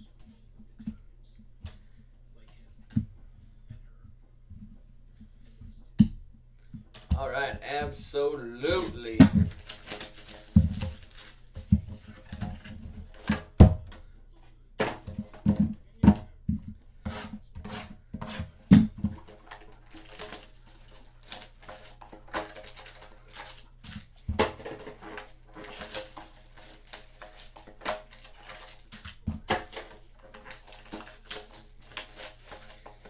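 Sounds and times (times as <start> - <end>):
cards and wrappers rustling: 7.5 - 13.6, 17.7 - 33.0.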